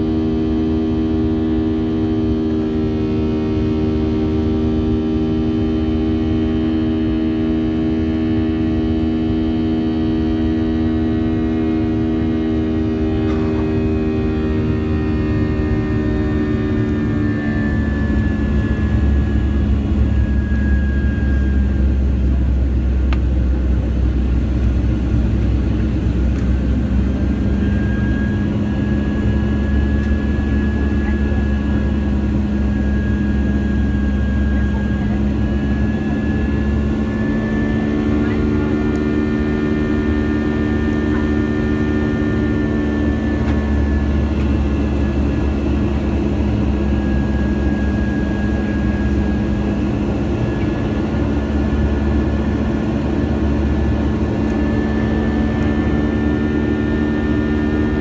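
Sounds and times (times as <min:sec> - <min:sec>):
jet engine drone in cabin: 0:00.0 - 0:58.0.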